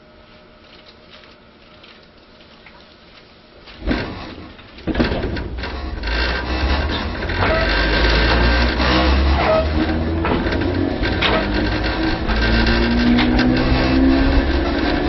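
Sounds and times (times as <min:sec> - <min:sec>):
train traction motors and gearing: 0:03.8 - 0:15.0.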